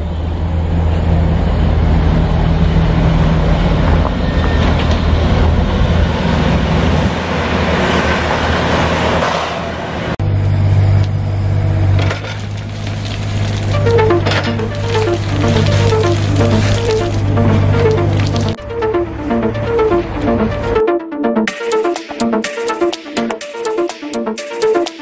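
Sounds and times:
diesel engine running: 0:10.2 - 0:21.4.

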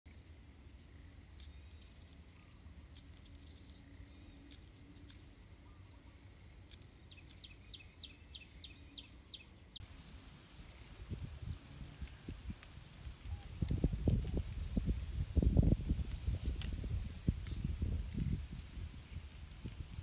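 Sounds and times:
high-pitched insect buzz: 0:00.1 - 0:09.8
cricket trills: 0:00.1 - 0:10.0, 0:10.6 - 0:20.0.

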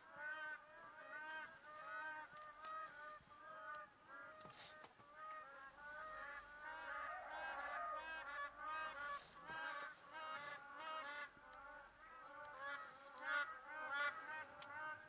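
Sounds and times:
flock of birds calling: 0:00.0 - 0:15.0.

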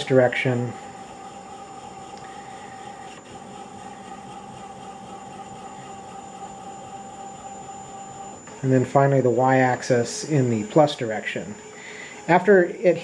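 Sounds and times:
servo motor whine: 0:00.0 - 0:13.0.

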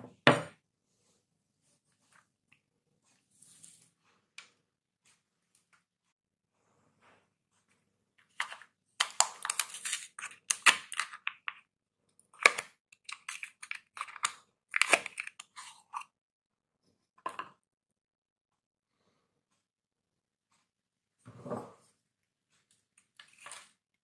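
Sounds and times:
wrapper crinkling and tearing: 0:09.0 - 0:11.1.

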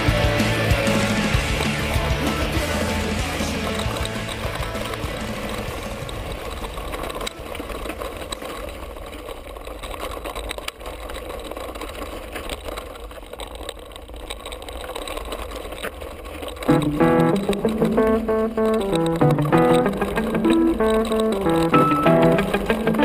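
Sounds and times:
mountain bike rattling over rocks: 0:00.0 - 0:23.0.

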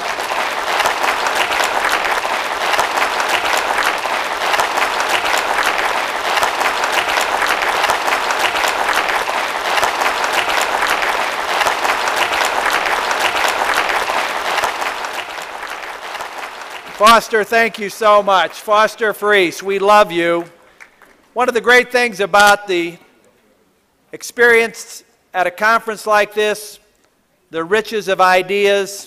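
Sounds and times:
audience applauding: 0:00.0 - 0:18.6, 0:20.4 - 0:21.4.

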